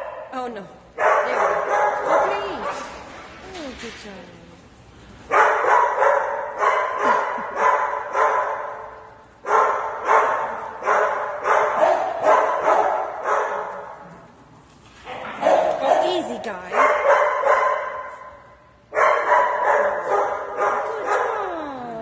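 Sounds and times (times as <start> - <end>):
small dog barking: 1.0 - 2.8, 5.3 - 8.8, 9.5 - 13.9, 15.1 - 18.2, 18.9 - 21.4.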